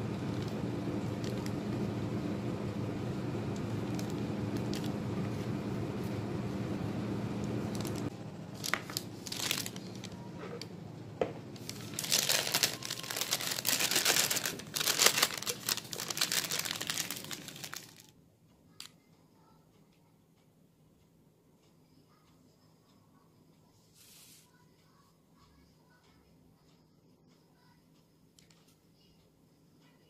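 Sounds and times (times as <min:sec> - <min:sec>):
low steady hum: 0:00.0 - 0:30.0
plastic piping bag crinkling: 0:00.2 - 0:01.7, 0:03.6 - 0:05.0, 0:07.7 - 0:10.3, 0:11.5 - 0:18.1.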